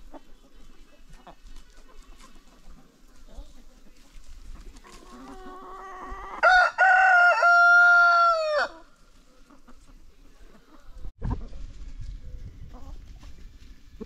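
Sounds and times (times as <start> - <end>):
rooster crowing: 6.3 - 8.8.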